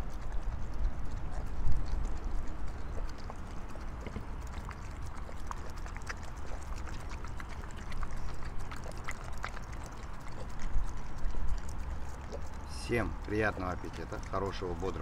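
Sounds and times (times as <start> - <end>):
dogs lapping food: 0.0 - 15.0.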